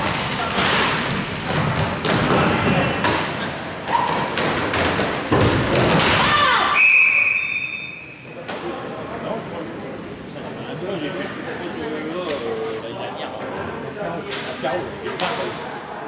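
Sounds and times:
sticks and puck hitting boards: 0:00.0 - 0:06.6
referee whistle blast: 0:06.7 - 0:08.2.

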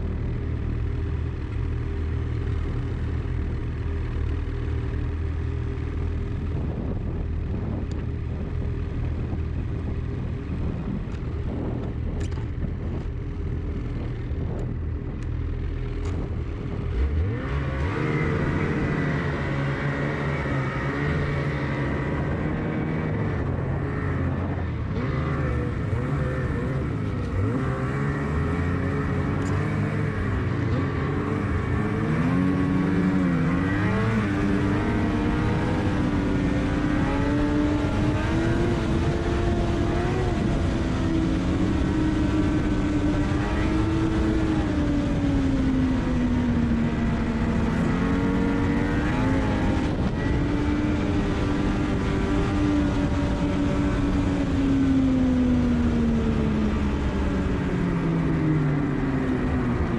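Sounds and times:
snowmobile engine running: 0:00.0 - 0:59.9
wind rush and track noise: 0:00.0 - 0:59.9.

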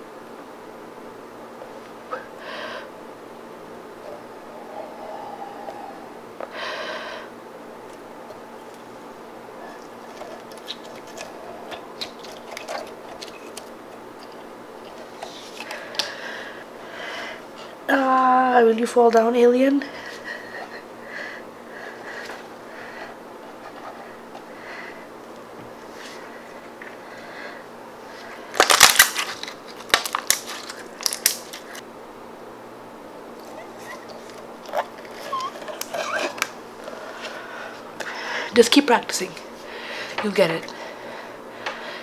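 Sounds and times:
faint hiss: 0:00.0 - 0:13.8.

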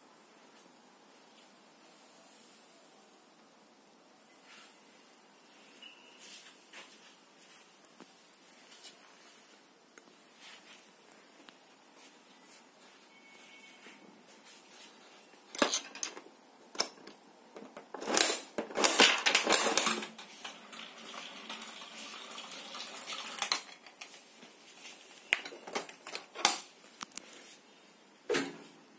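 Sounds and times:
vending mechanism clicking and rattling: 0:15.5 - 0:24.2, 0:25.4 - 0:26.7
ball rolling down plastic ramp: 0:17.6 - 0:23.8.

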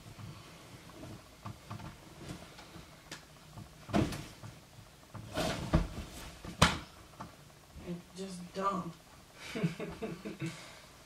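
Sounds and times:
clothes rustling: 0:00.0 - 0:06.7.

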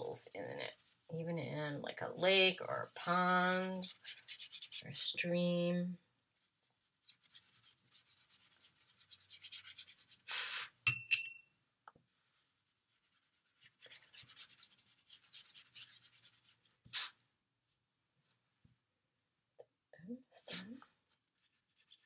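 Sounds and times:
paintbrush scrubbing over paper: 0:00.0 - 0:01.2, 0:02.2 - 0:05.2, 0:06.4 - 0:10.7, 0:12.2 - 0:17.2, 0:20.4 - 0:22.0
brush swish: 0:02.6 - 0:05.1, 0:12.3 - 0:17.2.

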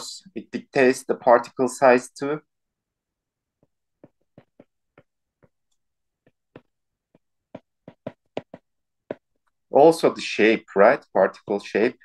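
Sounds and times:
stylus tapping on a tablet: 0:03.6 - 0:09.4.

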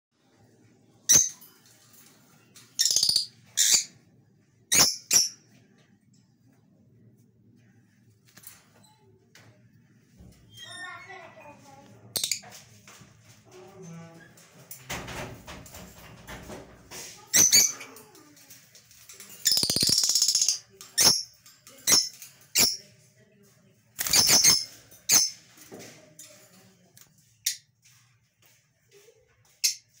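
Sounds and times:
shrill bird chirps: 0:02.8 - 0:03.9.

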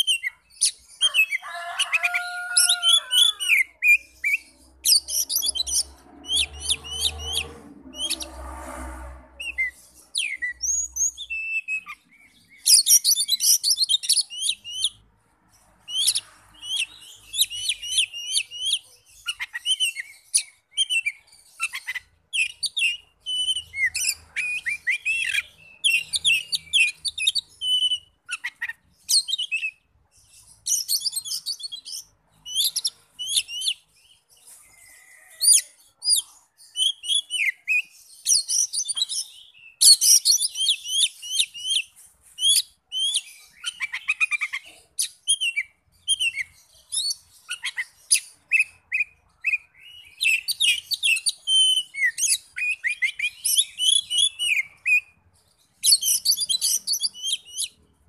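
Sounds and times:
bird singing whistles and chirps: 0:09.4 - 0:15.0, 0:15.9 - 0:29.8, 0:34.9 - 0:55.2, 0:55.8 - 0:57.8.

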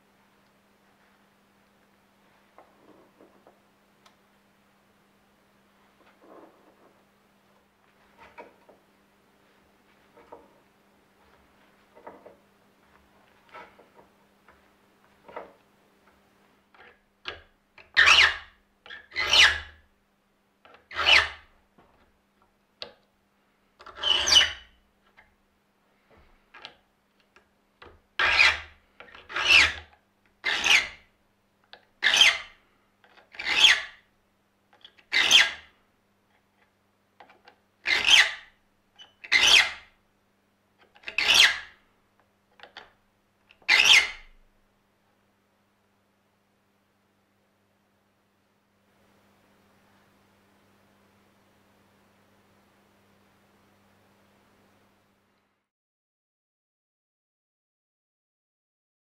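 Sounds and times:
file rasping on saw teeth: 0:17.9 - 0:19.7, 0:20.9 - 0:21.4, 0:23.8 - 0:24.6, 0:28.2 - 0:31.0, 0:32.0 - 0:32.6, 0:33.3 - 0:34.0, 0:35.1 - 0:35.7, 0:39.3 - 0:39.8.

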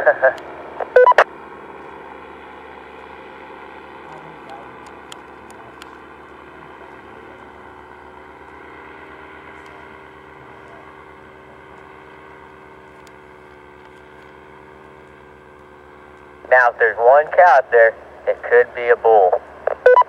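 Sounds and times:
paramotor droning overhead: 0:00.0 - 0:20.0.

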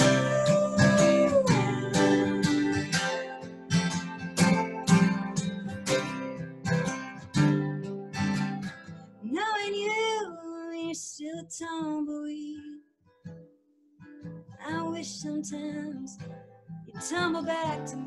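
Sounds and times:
woman singing: 0:00.0 - 0:03.4, 0:09.2 - 0:12.8, 0:14.6 - 0:16.3, 0:16.9 - 0:18.0
acoustic guitar strumming: 0:00.0 - 0:09.2, 0:13.3 - 0:18.0.

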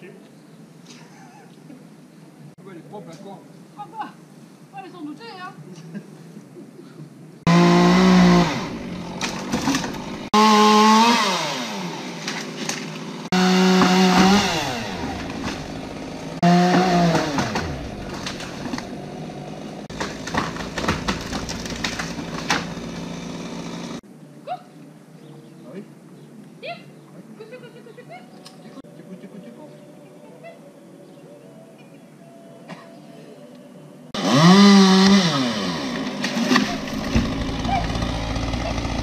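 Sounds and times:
chainsaw revving: 0:07.5 - 0:24.0, 0:34.2 - 0:39.0.

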